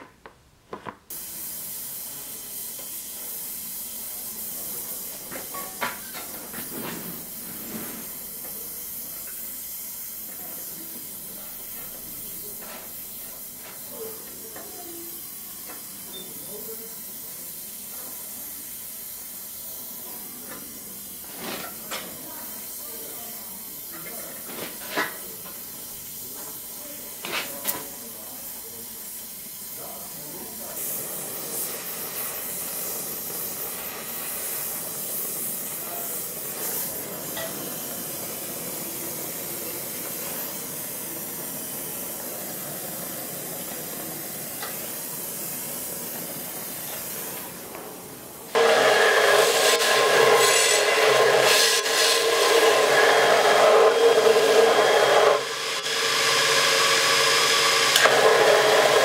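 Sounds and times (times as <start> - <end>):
torch flame hissing: 1.1 - 59.0
belt grinder whining on steel: 48.6 - 59.0.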